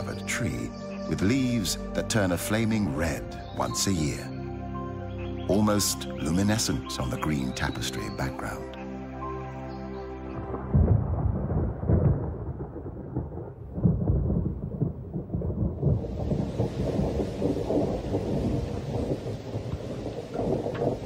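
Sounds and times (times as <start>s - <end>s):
thunder rumbling: 10.4s - 21.0s
heavy rain hissing: 15.9s - 21.0s.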